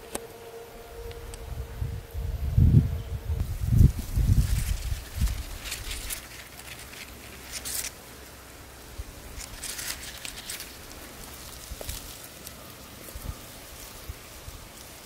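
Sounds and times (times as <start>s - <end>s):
leaves rustling: 0.0s - 15.0s.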